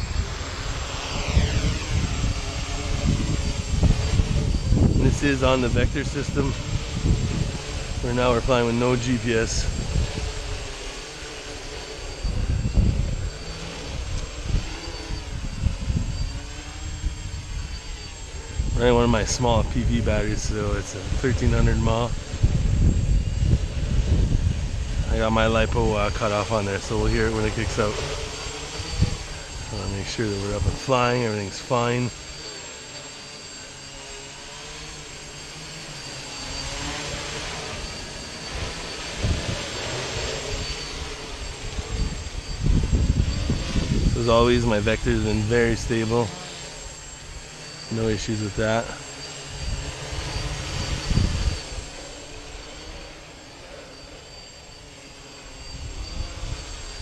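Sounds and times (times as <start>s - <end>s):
gusty low rumble: 0.0s - 10.8s, 12.1s - 30.8s, 36.6s - 46.1s
quadcopter propellers whining: 0.0s - 57.0s.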